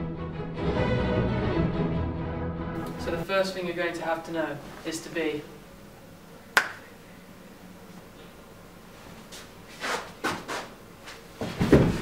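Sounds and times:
body thudding onto floor: 11.4 - 12.0.

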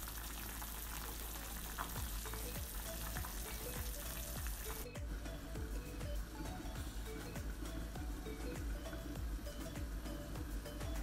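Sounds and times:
broth simmering with bubbling pops: 0.0 - 5.2.

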